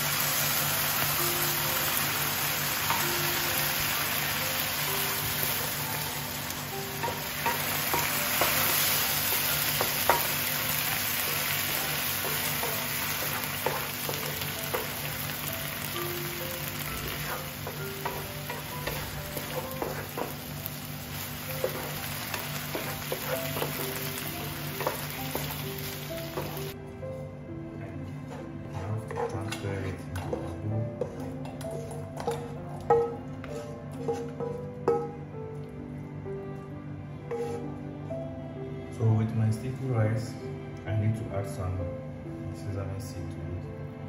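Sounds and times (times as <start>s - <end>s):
food sizzling in oil: 0.0s - 26.8s, 37.3s - 37.6s
wooden spatula clicking and scraping: 28.3s - 34.6s, 37.3s - 37.6s.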